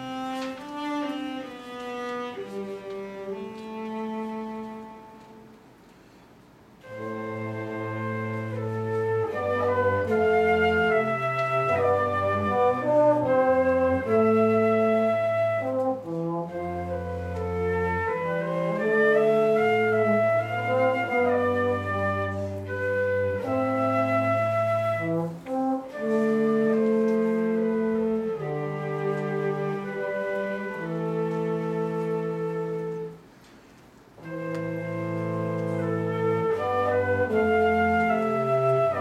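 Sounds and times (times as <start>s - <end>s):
cello: 0.0s - 5.7s, 6.8s - 39.0s
flute: 6.8s - 33.2s, 34.2s - 39.0s
trombone: 6.8s - 33.2s, 34.2s - 39.0s.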